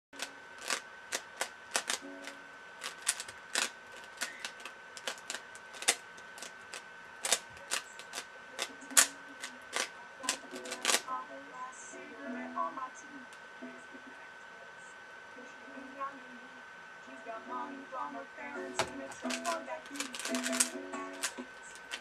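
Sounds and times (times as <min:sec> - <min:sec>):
puzzle cube clicking: 0:00.2 - 0:11.0, 0:18.8 - 0:22.0
faint high whine: 0:00.2 - 0:22.0.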